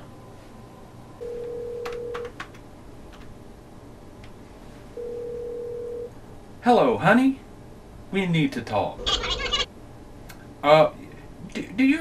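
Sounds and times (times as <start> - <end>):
telephone ringback tone: 1.2 - 2.2, 5.0 - 6.1.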